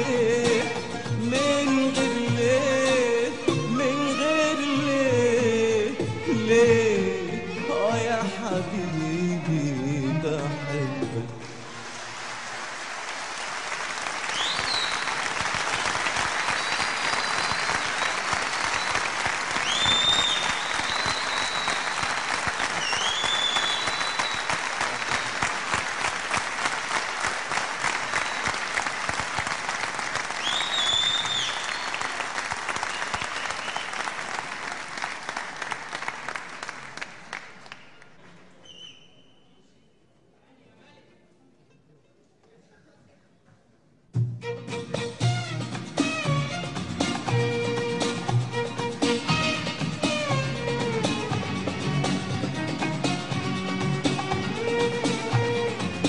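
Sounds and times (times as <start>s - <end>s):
audience applauding and cheering: 11.4s - 38.3s, 45.1s - 56.0s
high whistles: 14.2s - 25.5s, 30.4s - 34.1s, 38.6s - 39.6s.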